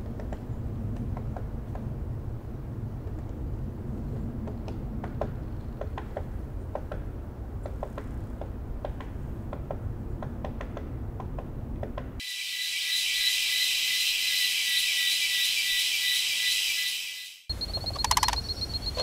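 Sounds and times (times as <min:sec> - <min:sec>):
constant whine: 0:12.2 - 0:19.0
sharp ticks: 0:17.5 - 0:19.0.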